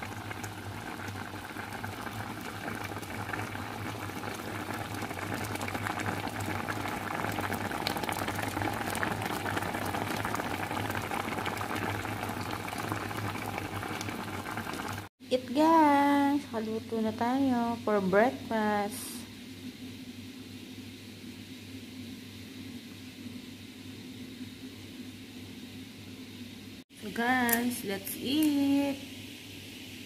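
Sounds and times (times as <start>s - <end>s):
broth boiling and bubbling: 0.0s - 16.4s.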